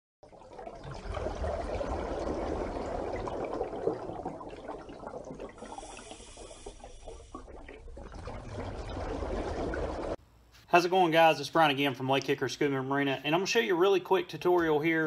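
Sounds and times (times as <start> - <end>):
water bubbling and gurgling: 0.2 - 10.2.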